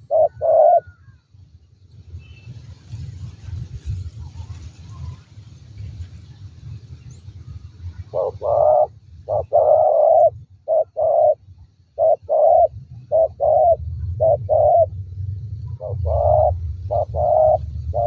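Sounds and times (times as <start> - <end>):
dove cooing: 0.0 - 1.2, 8.0 - 15.0, 15.7 - 18.0
steady low hum: 6.6 - 18.0.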